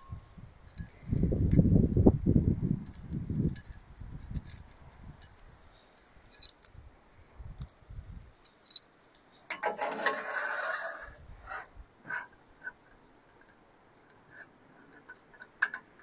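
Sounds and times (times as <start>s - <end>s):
metal clinks of bolts and bracket: 2.8s - 5.4s, 6.3s - 6.8s, 7.6s - 10.1s
metal scraping on metal: 9.5s - 12.8s.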